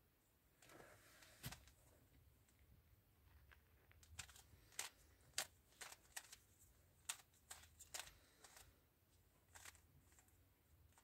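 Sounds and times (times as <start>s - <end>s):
puzzle cube clicking: 4.0s - 6.4s, 7.0s - 8.7s, 9.5s - 10.2s.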